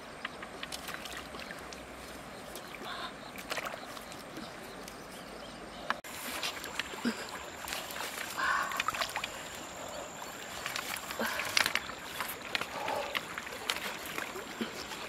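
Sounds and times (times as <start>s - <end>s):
bamboo clicks and knocks: 0.2s - 1.8s.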